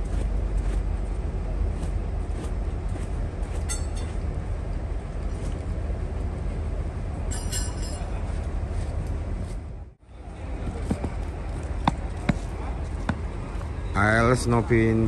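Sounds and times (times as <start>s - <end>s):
metallic clink: 3.7s - 4.2s, 7.3s - 8.1s.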